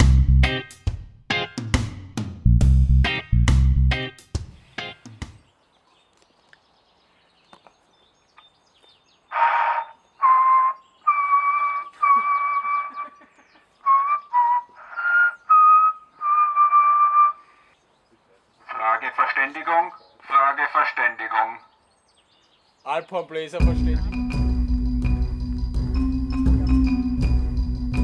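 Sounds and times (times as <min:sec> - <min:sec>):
guitar music: 0:00.0 - 0:02.0, 0:02.7 - 0:05.1, 0:23.6 - 0:28.0
tune whistled through megaphone: 0:09.4 - 0:13.0.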